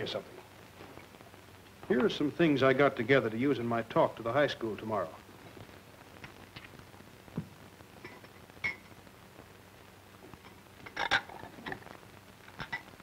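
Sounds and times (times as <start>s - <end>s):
film soundtrack hiss: 0.0s - 13.0s
glass knocking and clinking: 8.0s - 8.9s.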